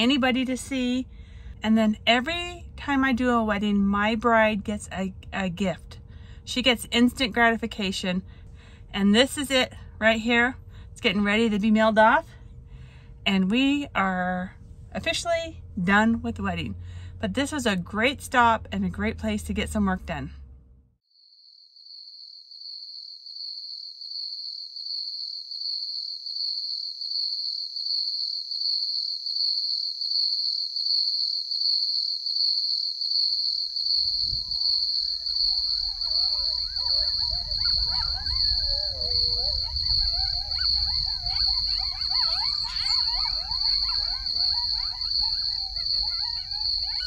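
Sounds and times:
low wind rumble: 0.0s - 20.7s, 33.9s - 47.0s
crickets chirping: 21.1s - 47.0s
wavering animal calls: 34.0s - 47.0s.

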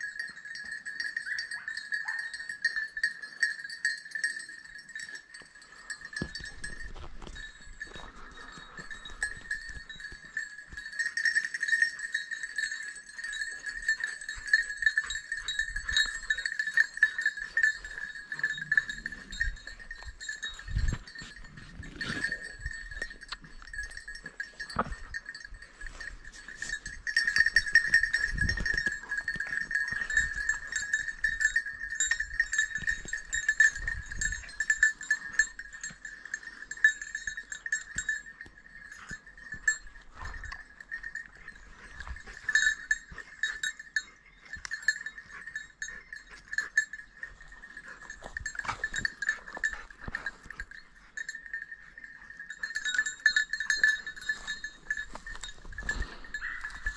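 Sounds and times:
dog bells jangling: 0.0s - 56.9s.

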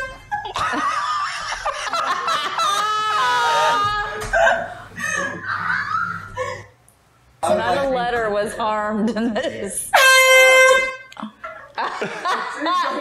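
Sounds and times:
high-pitched human laughter: 0.0s - 6.7s.

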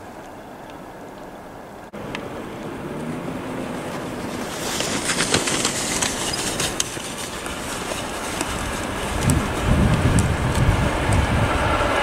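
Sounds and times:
locomotive engine humming: 0.0s - 12.0s
wheels clacking over track: 2.0s - 12.0s.

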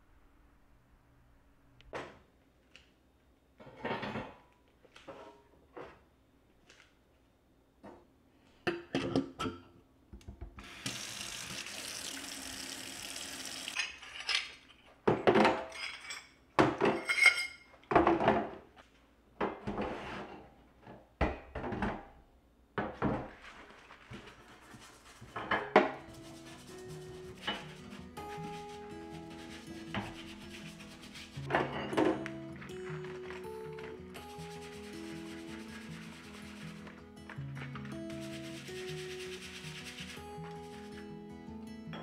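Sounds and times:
tap running: 10.2s - 13.8s
brush scrubbing grates: 23.5s - 31.5s, 34.2s - 37.0s, 37.8s - 41.0s.

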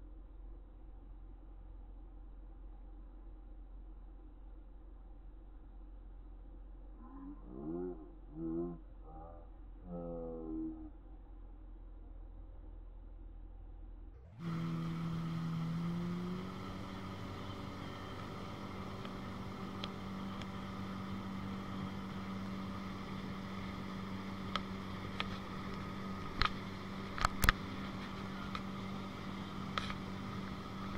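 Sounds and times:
motorboat engine running: 14.2s - 30.9s.

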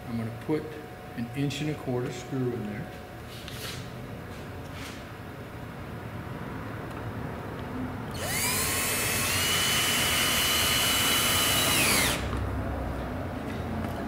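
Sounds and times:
power drill motor whine: 8.1s - 12.4s.

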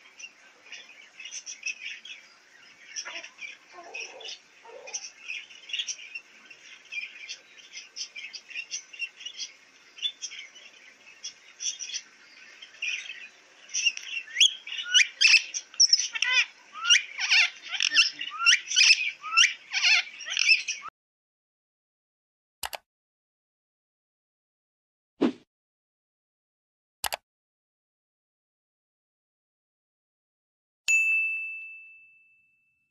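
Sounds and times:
parrots chirping softly: 0.0s - 20.9s.

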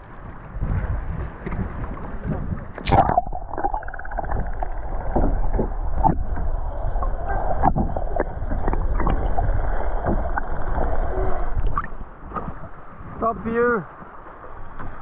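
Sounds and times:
water swirling underwater: 0.0s - 13.2s.

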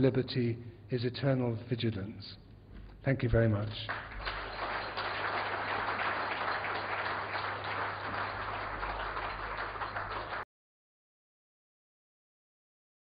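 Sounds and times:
audience applauding: 3.9s - 10.4s.

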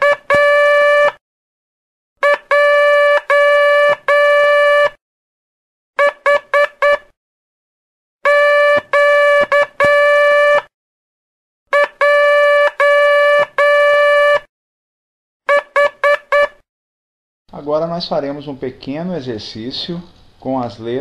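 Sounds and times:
morse code beeps: 0.0s - 1.2s, 2.2s - 5.0s, 6.0s - 7.0s, 8.3s - 10.7s, 11.7s - 14.5s, 15.5s - 16.6s.

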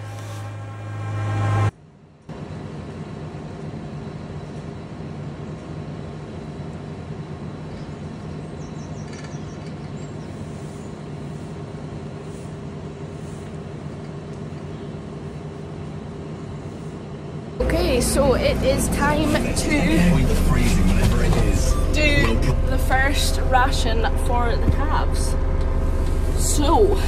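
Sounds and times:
tractor engine running: 17.6s - 27.0s.

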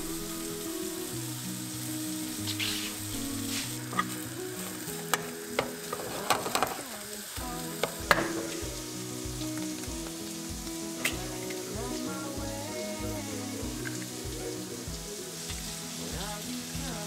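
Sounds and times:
meat sizzling in a pot: 0.0s - 17.0s.

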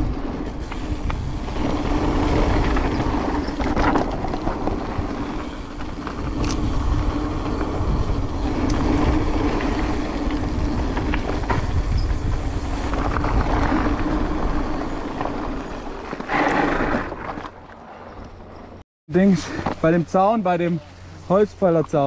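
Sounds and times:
wind noise: 0.0s - 17.5s
rolling rumble: 0.0s - 18.8s.

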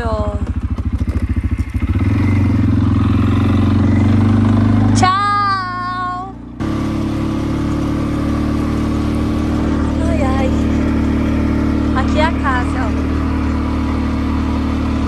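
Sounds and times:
quad bike engine running: 0.0s - 15.0s.

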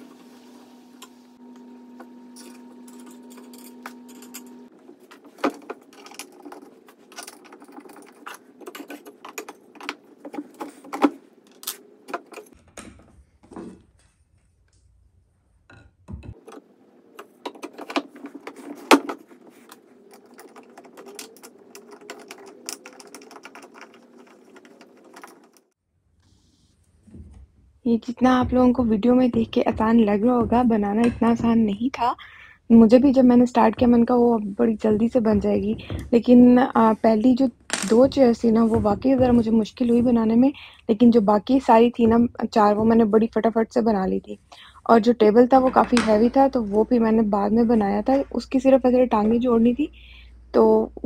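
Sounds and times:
metal bolts clicking and rattling: 20.1s - 25.6s.

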